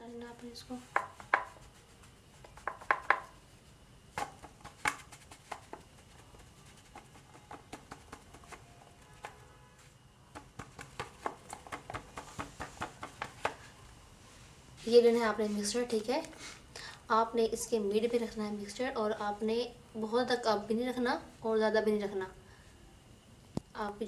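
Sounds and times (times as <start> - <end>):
fingertips patting dough: 0.4 - 3.4, 4.1 - 9.6, 10.2 - 13.7.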